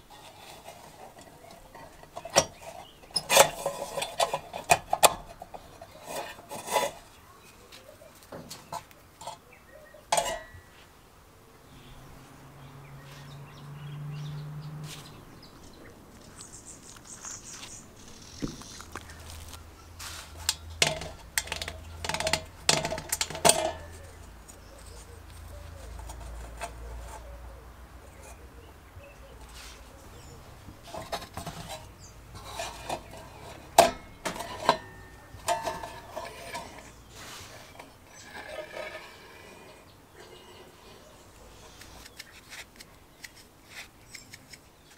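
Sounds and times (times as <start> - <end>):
metal lantern clicking and scraping: 0.0 - 7.2, 8.2 - 10.7, 20.2 - 27.4, 28.1 - 28.6, 30.2 - 44.9
small birds chirping: 0.9 - 3.3, 7.0 - 20.8, 23.8 - 33.6, 35.0 - 44.9
knock of metal lantern parts: 20.8 - 23.9, 33.7 - 36.8.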